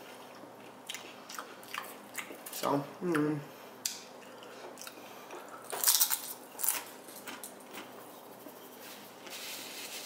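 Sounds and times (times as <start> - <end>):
chip crunching: 5.6 - 8.0
paper napkin rubbing: 8.3 - 10.0.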